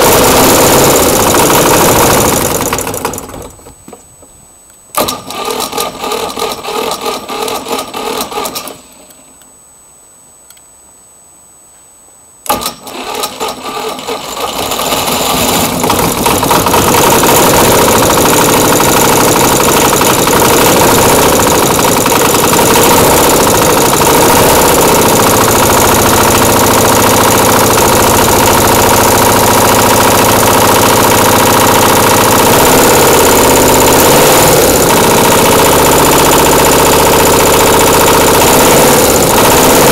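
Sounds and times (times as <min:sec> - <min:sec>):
motorcycle engine running: 0:00.0 - 0:03.7, 0:13.1 - 0:39.9
electric starter cranking engine: 0:00.0 - 0:03.9, 0:05.0 - 0:09.2, 0:12.5 - 0:39.9.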